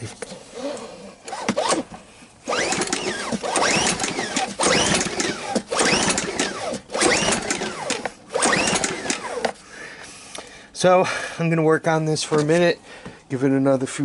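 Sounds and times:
generator pull-starter whirring: 0.6 - 9.6.

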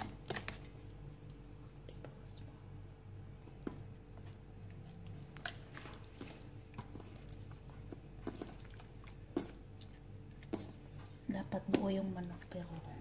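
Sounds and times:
wet squelching: 3.5 - 13.0.

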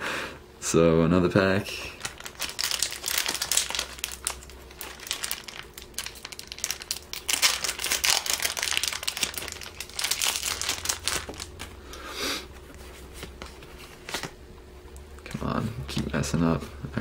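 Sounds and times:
foil wrapper crinkling and tearing: 1.9 - 11.8.

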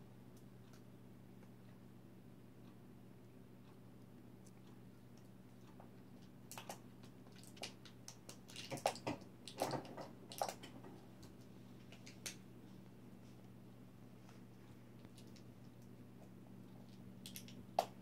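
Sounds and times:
faint low hum: 0.0 - 18.0.

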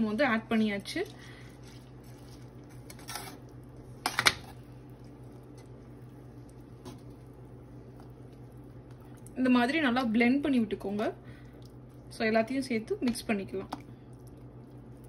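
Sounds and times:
wet stirring in a pot: 0.3 - 15.0.

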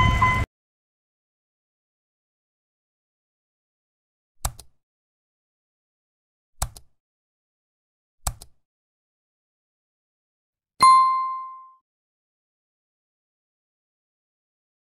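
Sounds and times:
mouse double clicks: 4.4 - 4.8, 6.6 - 7.0, 8.2 - 8.6
notification bell chime: 10.8 - 11.8.

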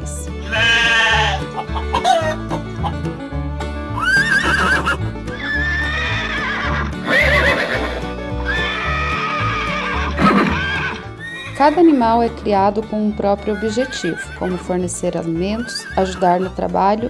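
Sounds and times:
music with pulsing bass: 0.0 - 7.1
horses neighing: 0.4 - 3.0, 3.9 - 12.0, 13.4 - 14.8, 15.4 - 16.7.

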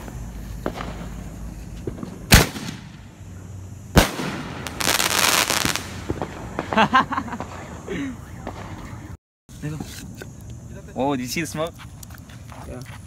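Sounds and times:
firework crackling: 0.0 - 3.3, 3.9 - 9.2
firework bangs: 0.0 - 9.2.

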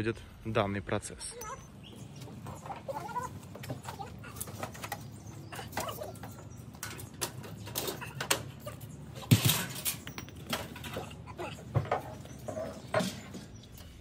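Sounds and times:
metal clanks and knocks: 2.2 - 14.0.

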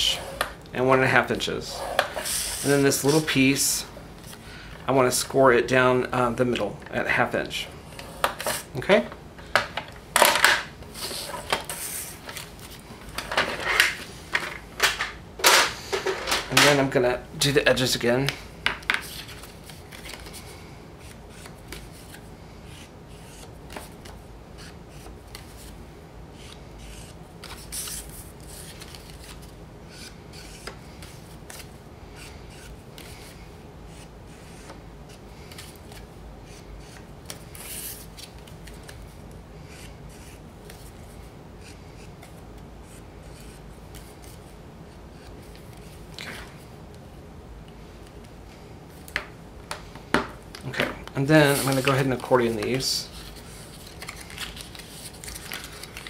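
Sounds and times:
card sliding and rustling: 1.7 - 3.4, 10.8 - 14.4, 51.3 - 56.0
marker pen scratching on card: 26.4 - 28.6, 33.9 - 34.7
paper swishes: 51.4 - 56.0.

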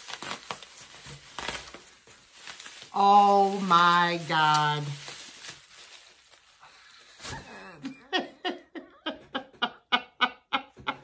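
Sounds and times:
woman laughing: 7.3 - 11.0.

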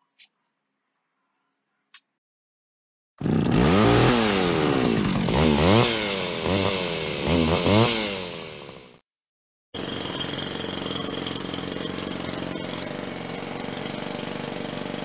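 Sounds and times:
small petrol engine revving: 3.2 - 9.0, 10.3 - 15.0.

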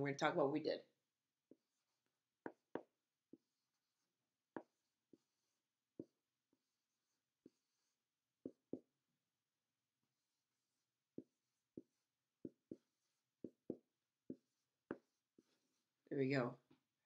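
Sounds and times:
marker tapping and scratching: 1.4 - 9.0, 10.0 - 16.0.

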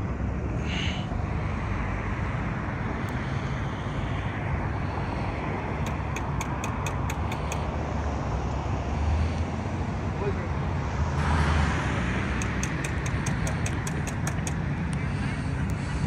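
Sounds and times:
road traffic rumble: 0.0 - 16.0
light clicks: 12.4 - 14.6.

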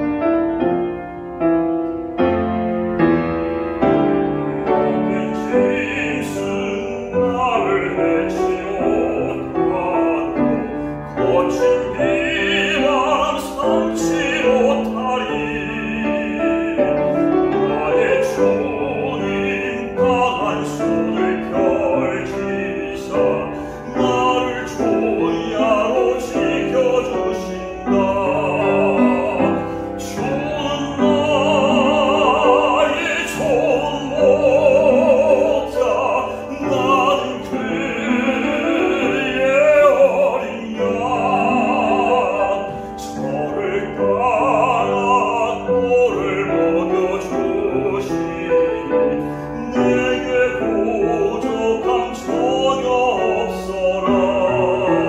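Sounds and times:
piano accompaniment: 0.0 - 55.0
man singing hymn operatically: 3.7 - 55.0.

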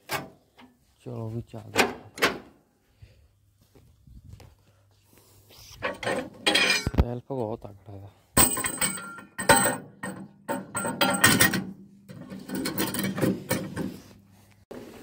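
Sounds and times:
metallic clanks and knocks: 5.9 - 7.0, 8.4 - 14.0.

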